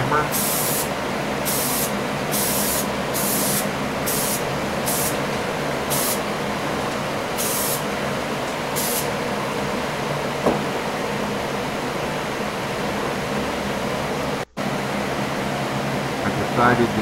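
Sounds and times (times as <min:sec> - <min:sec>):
steady background hum: 0:00.0 - 0:17.0
spray paint hissing: 0:00.3 - 0:05.2, 0:05.9 - 0:06.2, 0:07.4 - 0:07.9, 0:08.7 - 0:09.1.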